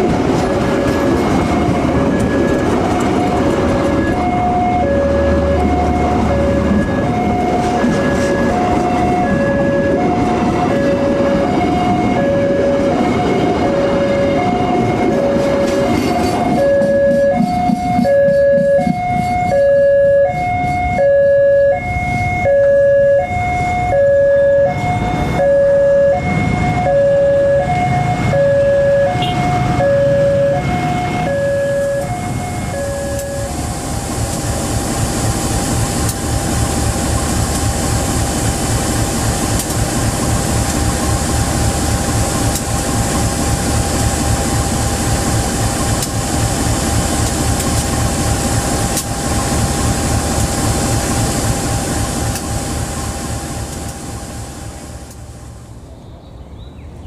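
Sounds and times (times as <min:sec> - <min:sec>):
level-crossing alarm tones: 0:00.0 - 0:38.6
diesel locomotive engine rumble: 0:00.0 - 0:57.0.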